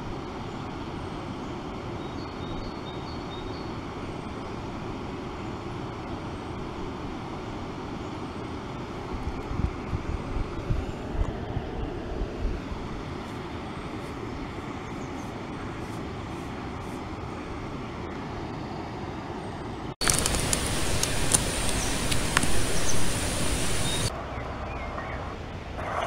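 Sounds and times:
high steady whine: 0.0 - 26.0
scattered clicks: 20.0 - 23.8
loud hiss: 20.0 - 24.1
river water rushing: 20.0 - 24.1.

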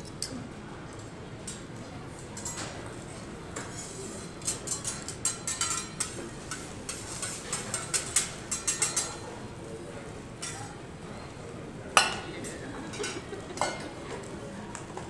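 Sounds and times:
metal spatulas tapping on griddle: 4.4 - 9.2.

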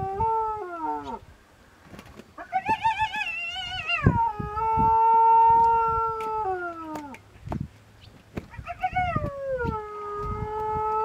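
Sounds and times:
hyena shrieking and howling: 0.0 - 1.2, 2.4 - 7.2, 8.5 - 11.0.

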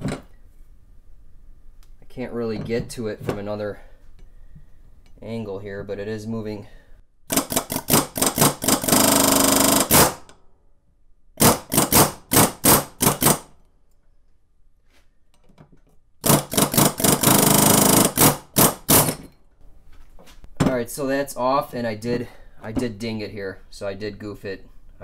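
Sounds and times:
pneumatic air hammer chattering: 7.3 - 10.2, 16.2 - 19.3.

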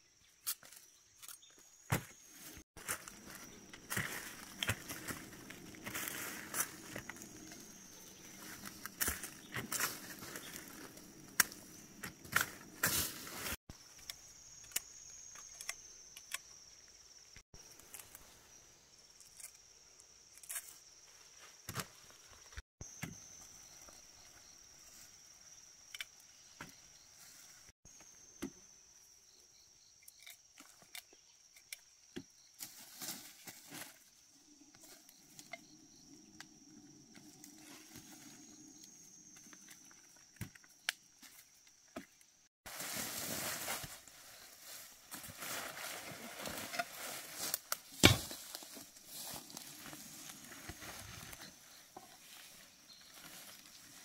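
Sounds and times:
insects droning: 0.0 - 54.0.

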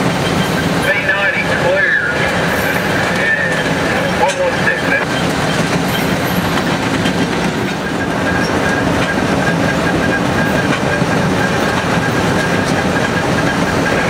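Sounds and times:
diesel locomotive engine: 0.0 - 14.0
train wheels on rails: 0.0 - 14.0.

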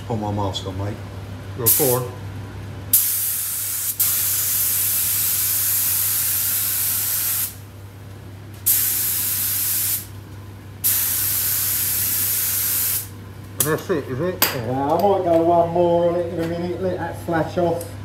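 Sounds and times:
spray gun hissing: 2.9 - 7.6, 8.6 - 10.1, 10.8 - 13.1.

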